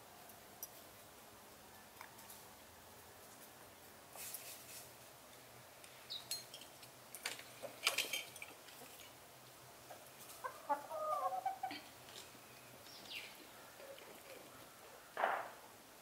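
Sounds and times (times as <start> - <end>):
chickens clucking: 9.8 - 15.4.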